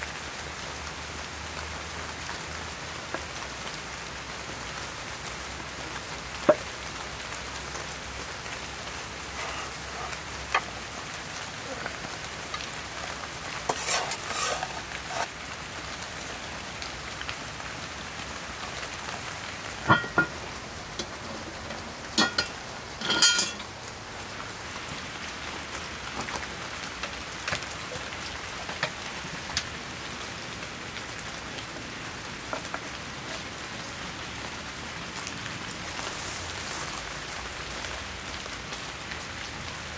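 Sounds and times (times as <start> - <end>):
steady rain falling: 0.0 - 39.9
meat rustling and scraping: 9.1 - 11.0, 11.9 - 15.3, 35.9 - 37.8.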